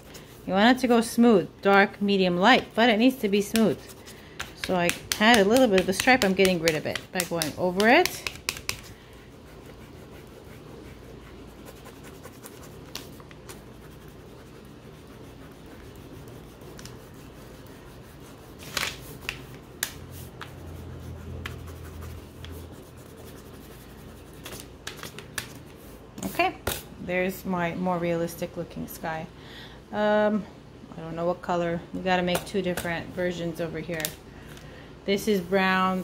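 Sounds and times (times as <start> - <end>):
crayon scratching on paper: 2.6 - 18.7, 20.2 - 24.6
crayons clicking on table: 4.4 - 8.9.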